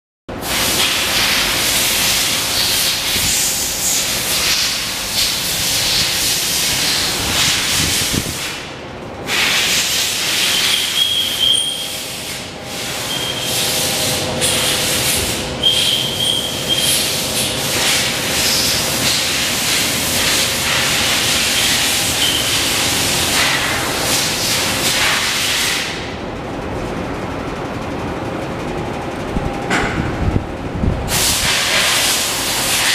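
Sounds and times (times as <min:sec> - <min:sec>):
drum fan rushing air: 0:00.3 - 0:32.9
faint motor hum: 0:11.8 - 0:31.2.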